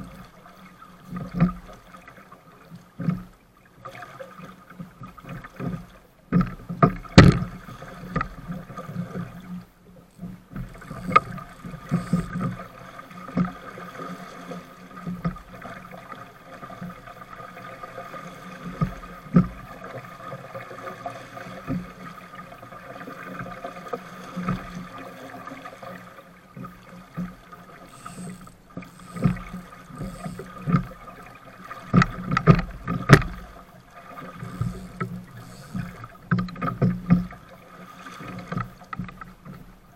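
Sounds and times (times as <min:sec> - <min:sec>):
water rushing against hull: 0:00.0 - 0:39.9
hull knocking on waves: 0:06.3 - 0:08.5, 0:10.2 - 0:12.6, 0:27.1 - 0:37.4.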